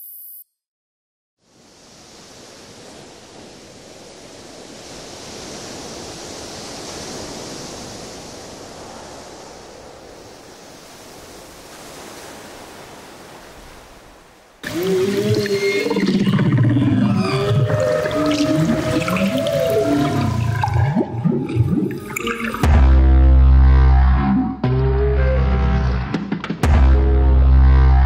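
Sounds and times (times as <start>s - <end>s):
ocean surf rushing: 1.5s - 22.6s.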